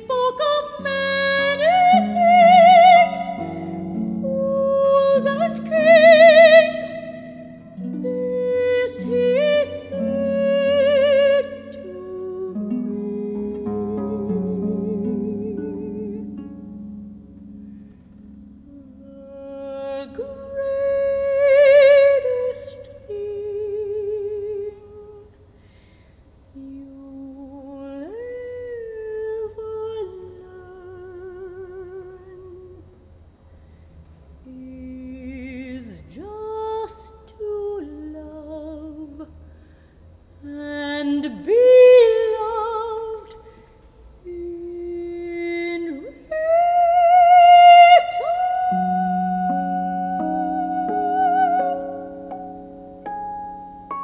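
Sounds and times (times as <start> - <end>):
woman singing with vibrato: 0.0 - 16.5, 18.6 - 25.4, 26.5 - 32.9, 34.4 - 39.4, 40.4 - 43.6, 44.2 - 54.0
soft harp accompaniment: 0.0 - 25.2, 44.5 - 54.0.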